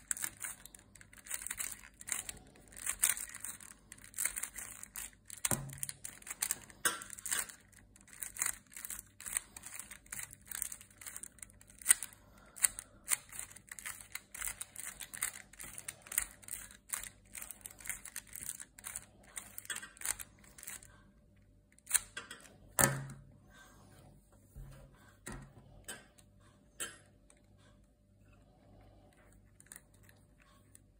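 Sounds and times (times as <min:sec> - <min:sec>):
plastic balls clicking and rattling: 0:00.0 - 0:21.1.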